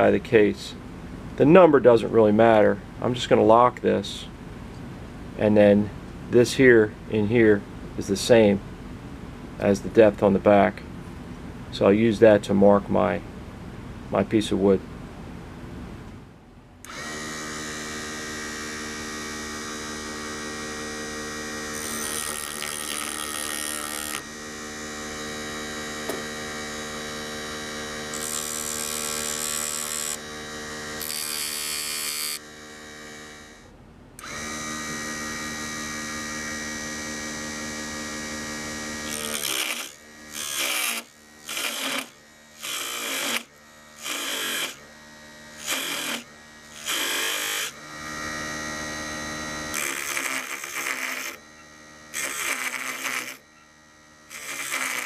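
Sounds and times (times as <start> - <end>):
small electric motor humming: 16.8 - 55.0
tool scraping turning wood: 21.7 - 24.3, 28.0 - 30.2, 39.0 - 44.8, 45.6 - 47.8, 49.6 - 51.4, 52.1 - 53.5, 54.3 - 55.0.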